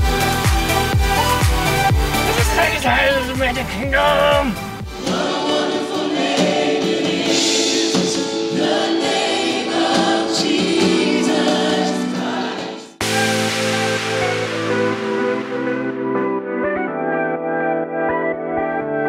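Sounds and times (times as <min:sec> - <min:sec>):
different music: 0:00.0 - 0:19.0
live worship band with singers: 0:04.3 - 0:16.6.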